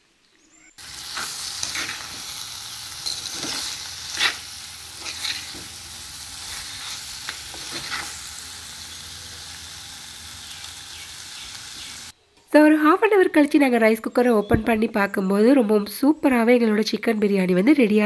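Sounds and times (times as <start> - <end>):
food sizzling in oil: 0.8 - 12.2
metal spoon scraping pan: 3.0 - 5.8, 6.4 - 8.2.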